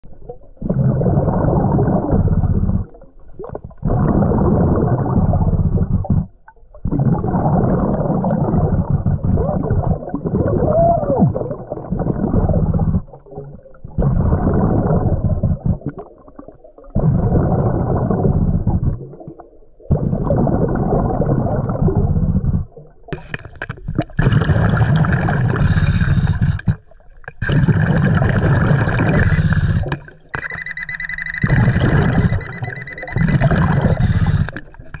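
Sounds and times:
regulator bubbling underwater: 0:00.0 - 0:35.0
high buzzing tone: 0:29.1 - 0:35.0.

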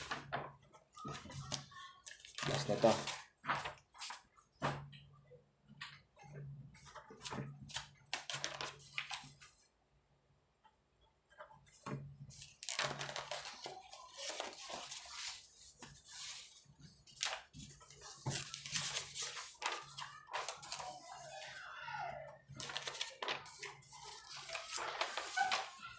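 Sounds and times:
paper pages rustling: 0:00.0 - 0:04.3, 0:06.8 - 0:09.6, 0:12.2 - 0:21.6, 0:22.5 - 0:25.9.

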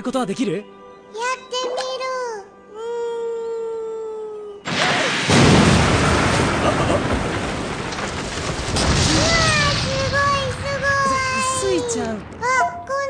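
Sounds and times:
loud crash: 0:04.7 - 0:12.4.

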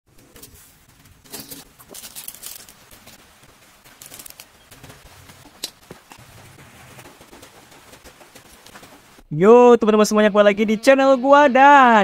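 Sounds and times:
plastic sachets crinkling: 0:01.3 - 0:03.2, 0:03.8 - 0:04.7.

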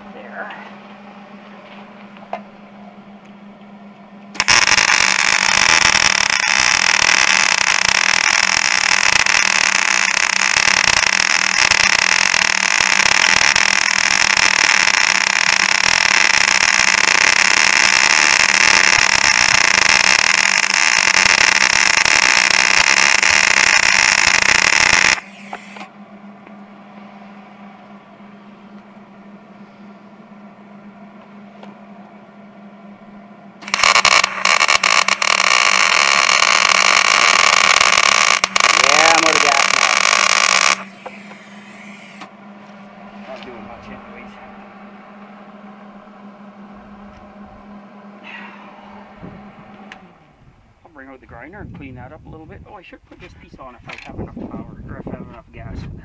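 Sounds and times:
welding arc crackling hiss: 0:04.4 - 0:25.9, 0:33.6 - 0:42.3.

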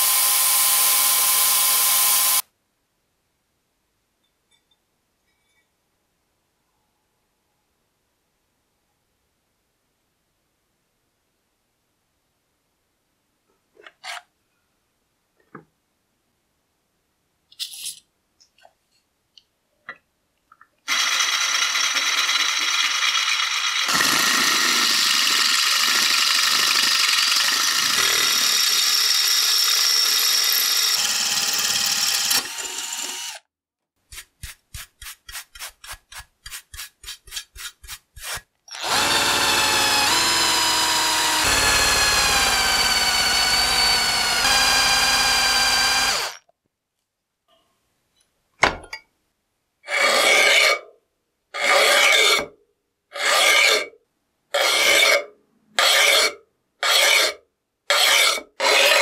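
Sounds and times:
drill boring through metal: 0:00.0 - 0:02.4, 0:20.9 - 0:33.4, 0:38.2 - 0:46.4
short rapid drill bursts: 0:00.0 - 0:02.4, 0:38.2 - 0:46.4.

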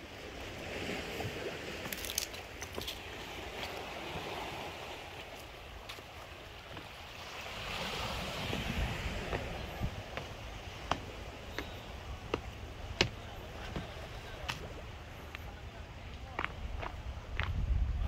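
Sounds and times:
waves washing onto pebble shore: 0:00.0 - 0:14.6
wind on microphone: 0:07.1 - 0:14.9, 0:16.5 - 0:18.0.

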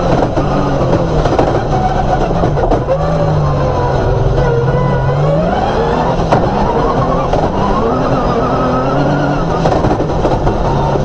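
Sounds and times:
sharp knocks: 0:00.0 - 0:03.0
rally car engine revving: 0:00.0 - 0:11.0.

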